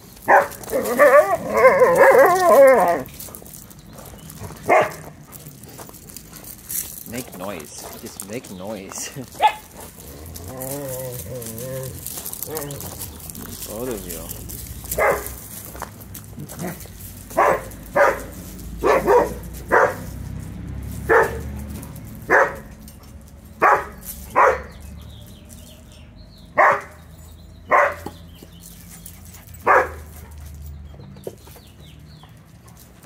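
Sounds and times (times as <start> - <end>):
dog barking: 0.3 - 3.0, 4.6 - 5.0, 9.4 - 9.7, 14.9 - 15.4, 16.6 - 20.1, 21.1 - 21.5, 22.3 - 22.7, 23.6 - 24.8, 26.6 - 27.0, 27.7 - 28.2, 29.6 - 30.1.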